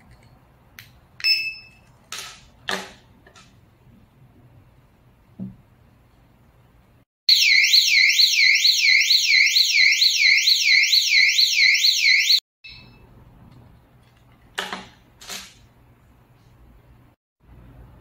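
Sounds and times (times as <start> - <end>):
warbling electronic siren: 7.3 - 12.4.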